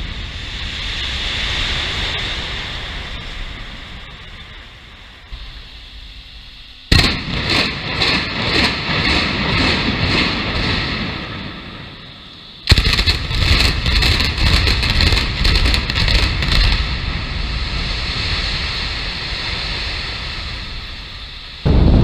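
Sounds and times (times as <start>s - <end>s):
demolition charges blasting: 6.3s - 18.8s
building collapse rumble: 6.8s - 22.0s.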